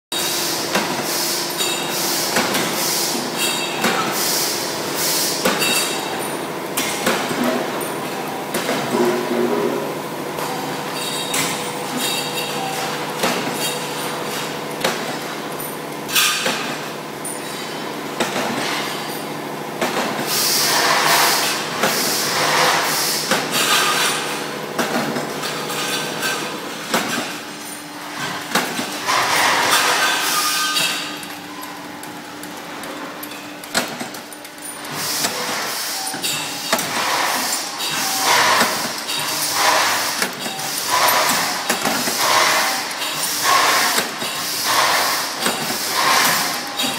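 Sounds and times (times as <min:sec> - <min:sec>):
factory machinery humming: 0:00.2 - 0:46.9.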